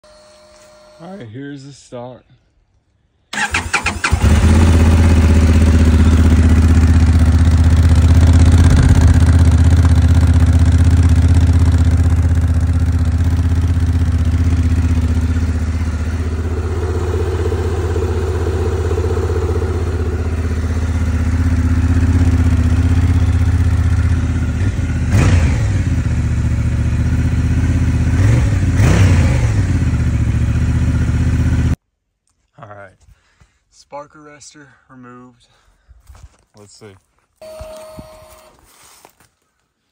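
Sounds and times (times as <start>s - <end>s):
motorcycle engine idling: 3.4s - 28.8s, 29.5s - 31.8s
motorcycle engine revving: 3.4s - 31.8s.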